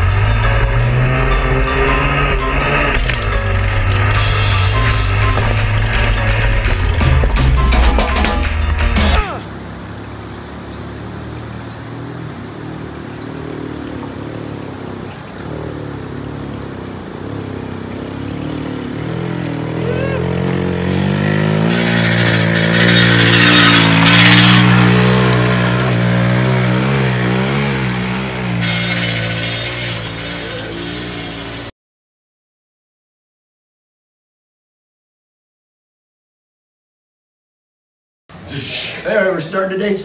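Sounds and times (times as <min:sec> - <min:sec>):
small motorbike engine: 0:09.3 - 0:31.7.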